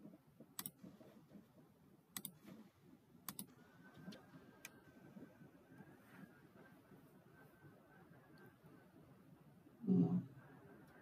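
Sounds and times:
computer mouse clicks: 0.6s - 0.9s, 2.1s - 2.6s, 3.2s - 3.5s
faint steady high tone: 3.5s - 9.0s.

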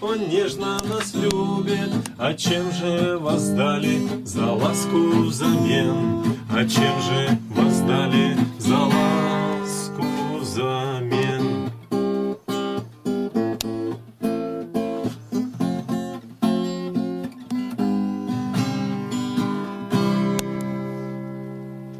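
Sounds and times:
acoustic guitar chords: 0.0s - 21.9s.

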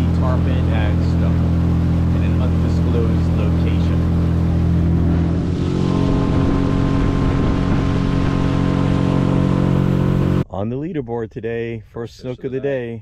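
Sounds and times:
outboard motor running: 0.0s - 10.4s
water rushing past: 1.5s - 10.4s
wind rushing: 4.0s - 10.4s.

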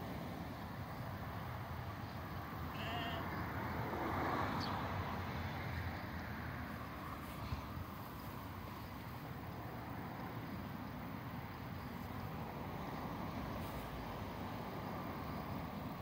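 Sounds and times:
sheep bleating: 2.7s - 3.4s.

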